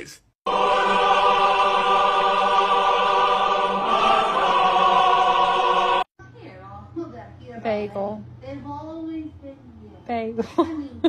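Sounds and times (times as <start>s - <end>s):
choir holding a chord: 0.5s - 6.1s.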